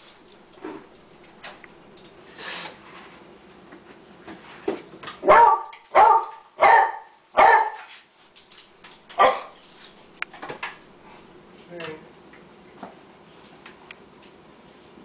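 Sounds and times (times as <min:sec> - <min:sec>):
dog barking: 0:05.2 - 0:07.9, 0:09.2 - 0:09.6.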